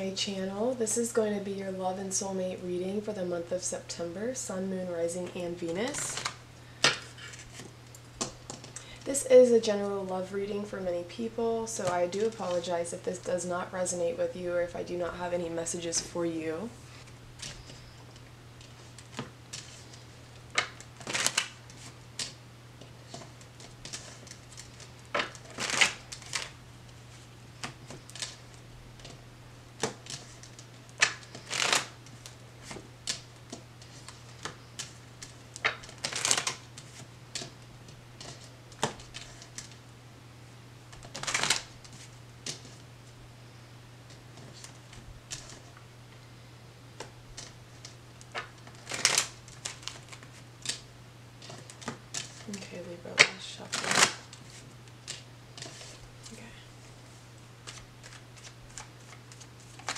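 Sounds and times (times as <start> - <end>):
faint low hum: 0.0 - 59.9
cards being shuffled: 16.9 - 29.2, 29.8 - 37.6, 38.2 - 39.8, 40.9 - 42.8, 44.1 - 45.7, 47.0 - 50.8, 53.2 - 56.4, 57.6 - 59.9.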